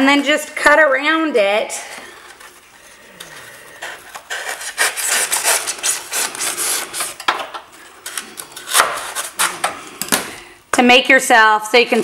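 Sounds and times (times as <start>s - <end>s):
knife sawing floral foam: 3.8s - 7.2s.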